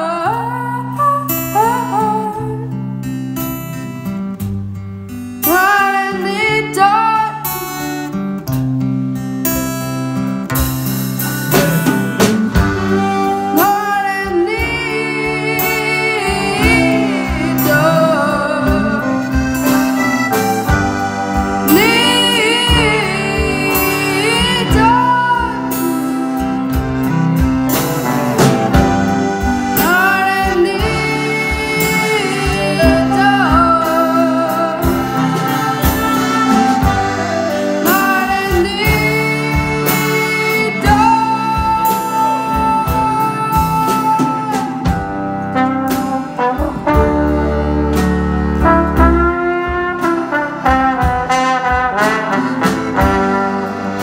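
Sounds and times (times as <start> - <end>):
drums: 0.0 - 54.0
acoustic guitar strumming: 7.6 - 25.8
trombone: 10.6 - 42.6, 43.5 - 54.0
saxophones: 11.5 - 54.0
boy singing: 13.4 - 19.0, 29.8 - 35.1, 37.8 - 44.8.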